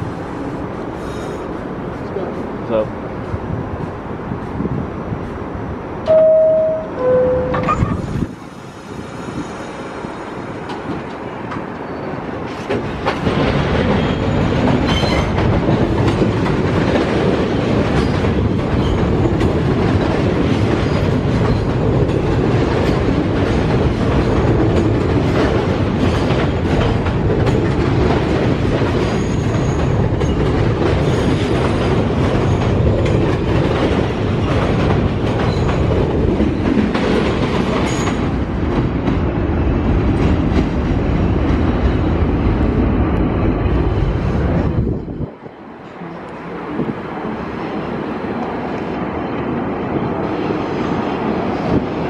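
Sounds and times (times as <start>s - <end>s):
subway train running: 0.0s - 52.0s
wheels clacking over rail joints: 10.6s - 42.1s.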